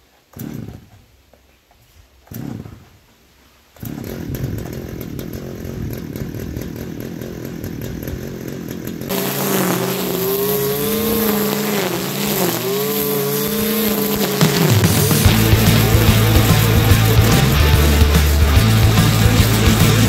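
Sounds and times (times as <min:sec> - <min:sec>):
brushcutter engine running: 0:00.3 - 0:00.9, 0:02.3 - 0:02.9, 0:03.8 - 0:20.0.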